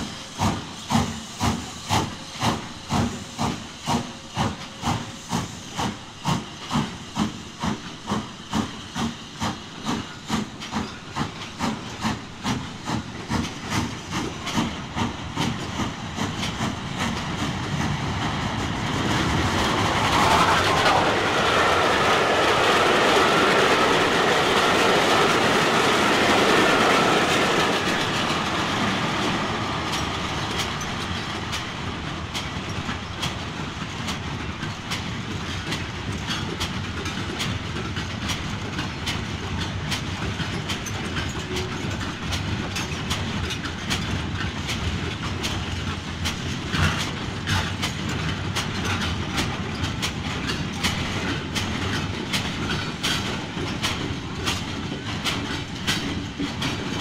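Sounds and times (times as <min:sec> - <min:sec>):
model train running rush: 0:00.0 - 0:57.0
wheels clicking over rail joints: 0:29.9 - 0:57.0.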